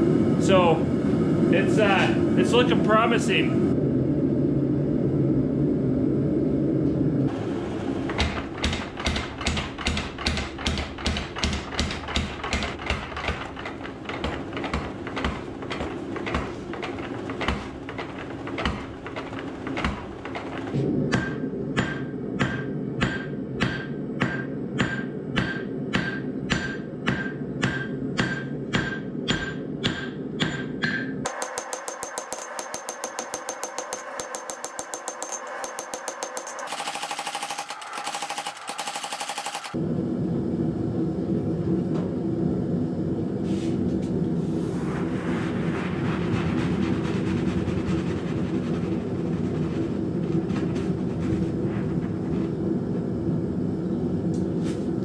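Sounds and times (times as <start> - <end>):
power hammer pounding steel: 8.0 - 39.8
hammer ringing on anvil: 21.2 - 36.7
steady rushing noise: 43.7 - 54.0.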